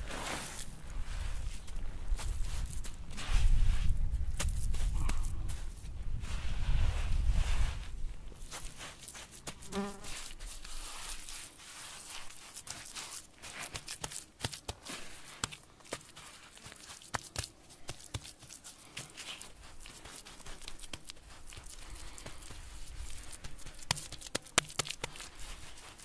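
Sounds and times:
hands patting wet mud: 0:08.4 - 0:26.0
grit crackling: 0:08.5 - 0:26.0.

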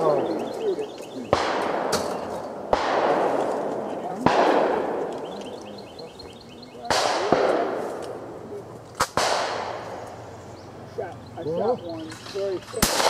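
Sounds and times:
shotgun shots with echo: 0:01.3 - 0:05.2, 0:06.8 - 0:08.2, 0:09.0 - 0:10.2, 0:12.8 - 0:13.0.

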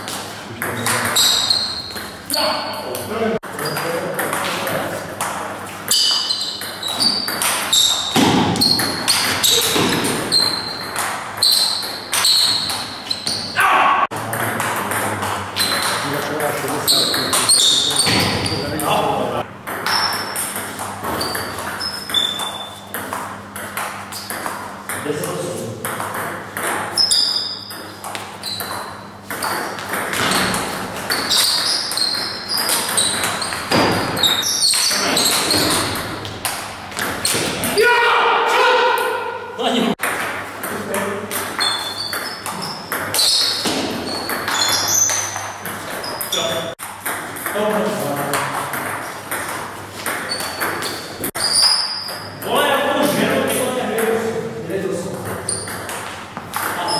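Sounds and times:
ball bouncing on table: 0:03.6 - 0:13.4, 0:19.6 - 0:37.7
table tennis ball hits: 0:03.6 - 0:13.6, 0:14.2 - 0:37.8, 0:40.0 - 0:53.3, 0:55.1 - 0:56.9.

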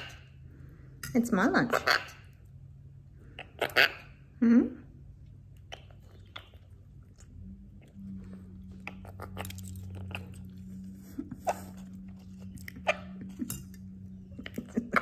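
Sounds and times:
low hum: 0:00.0 - 0:15.0
parrot calls: 0:03.4 - 0:04.3
food chewing and crunching: 0:05.1 - 0:15.0.

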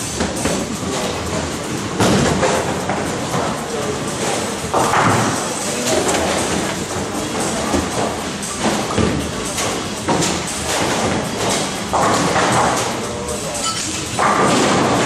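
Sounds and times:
noisy hall background: 0:00.0 - 0:15.0
bowling balls and pins knocking: 0:00.1 - 0:13.0, 0:13.9 - 0:15.0
murmuring voices: 0:02.6 - 0:10.1.

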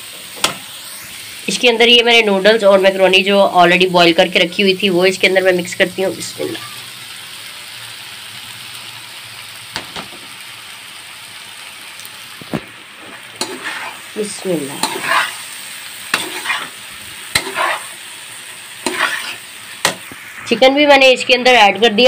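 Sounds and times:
vegetables sizzling in wok: 0:00.0 - 0:22.0
metal spatula scraping pan: 0:13.0 - 0:14.0, 0:14.7 - 0:15.5, 0:16.1 - 0:18.0, 0:18.8 - 0:20.1.

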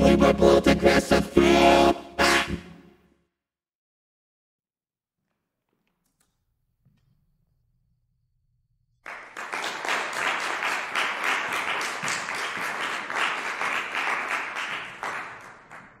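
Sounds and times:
audience applauding: 0:09.0 - 0:16.0.

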